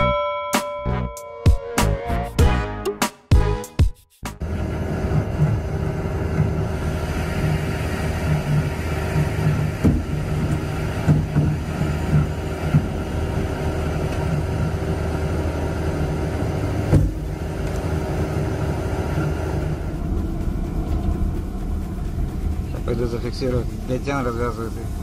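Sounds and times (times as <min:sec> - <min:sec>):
ship machinery droning: 0:04.4 - 0:25.0
winch cables hauling net: 0:04.4 - 0:25.0
sharp knocks: 0:09.2 - 0:13.1.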